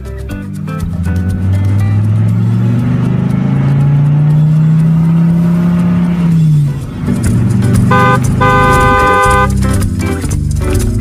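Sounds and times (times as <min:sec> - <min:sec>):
cartoon car engine hum: 0:00.6 - 0:10.0.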